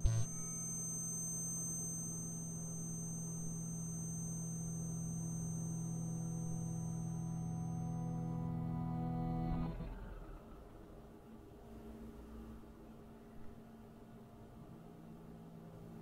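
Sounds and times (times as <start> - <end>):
low electronic drone: 0.0 - 11.0
faint high whine: 0.0 - 16.0.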